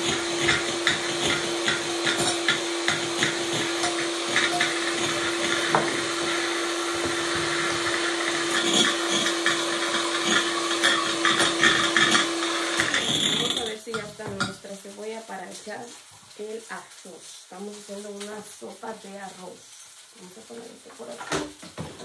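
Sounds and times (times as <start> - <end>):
electric hand mixer whipping: 0.0 - 14.5
beaters knocking on bowl: 0.0 - 14.6.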